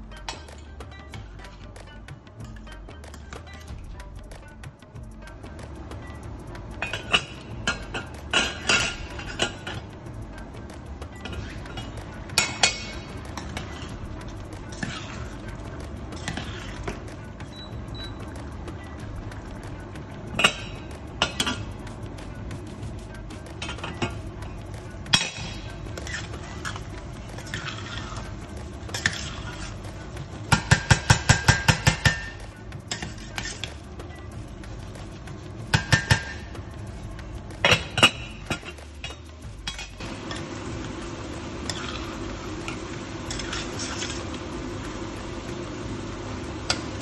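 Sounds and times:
steady hum: 0.0s - 47.0s
metal utensil clinking on pot: 6.8s - 9.9s, 11.2s - 14.0s, 14.7s - 18.3s, 20.3s - 21.8s, 23.5s - 29.8s, 30.5s - 33.8s, 35.7s - 36.6s, 37.6s - 40.5s, 41.7s - 44.3s.

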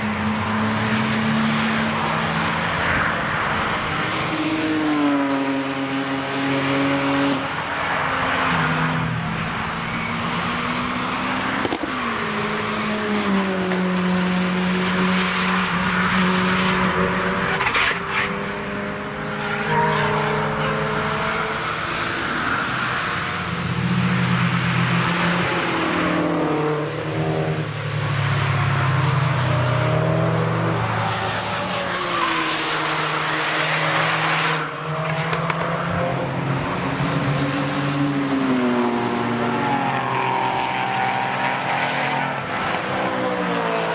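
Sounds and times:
car engines revving: 0.0s - 43.9s.

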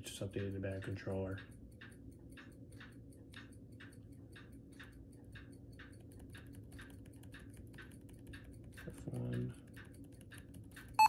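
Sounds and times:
laptop key tapping: 5.9s - 11.0s.

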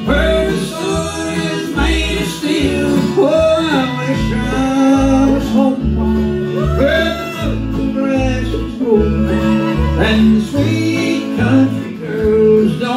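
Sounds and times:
acoustic guitar: 0.0s - 12.9s
banjo: 0.0s - 12.9s
fiddle: 0.0s - 12.9s
upright bass: 0.0s - 12.9s.

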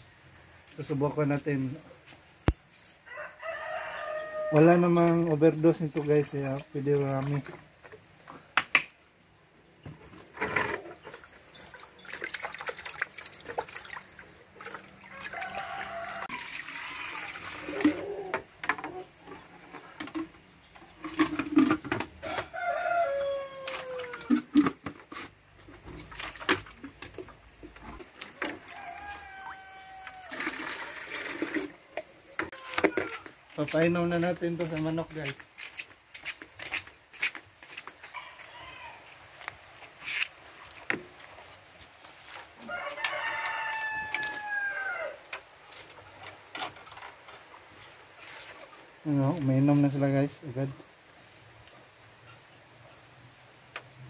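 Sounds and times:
rooster crowing: 3.0s - 4.8s, 15.0s - 17.3s, 22.2s - 24.3s, 28.4s - 30.6s, 38.1s - 39.2s, 42.6s - 45.2s.

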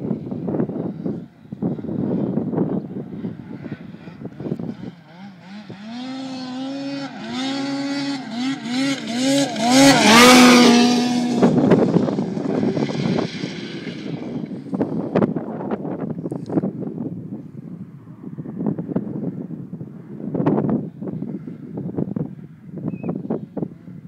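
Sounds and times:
wind buffeting microphone: 0.0s - 24.0s
snowmobile engine revving: 3.2s - 15.0s.

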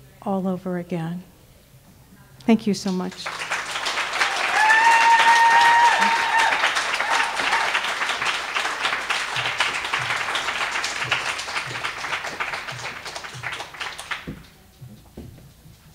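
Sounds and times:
audience applauding: 2.9s - 14.6s.

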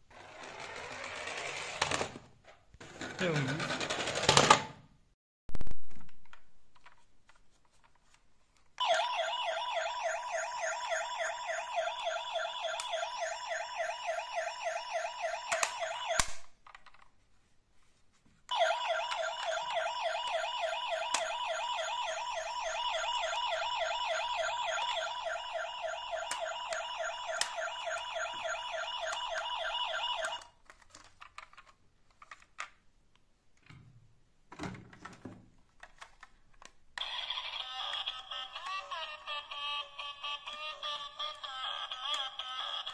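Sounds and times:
toy electronic siren warbling: 8.8s - 16.3s, 18.5s - 30.5s, 37.0s - 42.9s.

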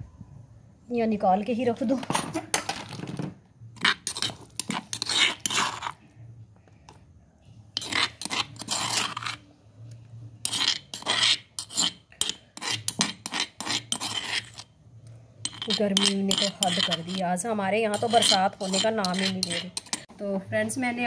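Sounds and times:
metal spoon scraping stone mortar: 3.7s - 6.1s, 7.7s - 9.6s, 10.4s - 14.8s, 15.4s - 20.1s.

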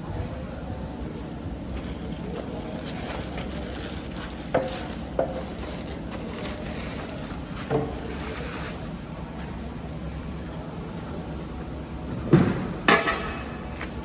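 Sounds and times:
plastic sheet rustling and crinkling: 1.8s - 9.6s.

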